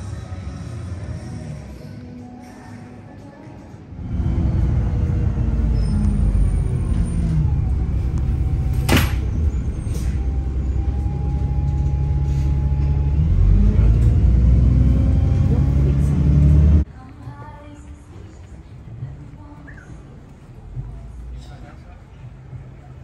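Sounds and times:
airplane cabin engine rumble: 4.0s - 16.9s.

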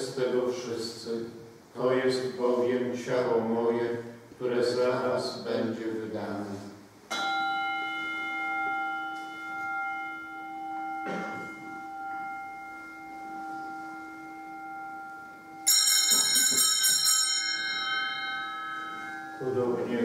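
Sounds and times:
small bells jangling: 7.1s - 19.4s
single bell ringing: 7.1s - 19.9s.

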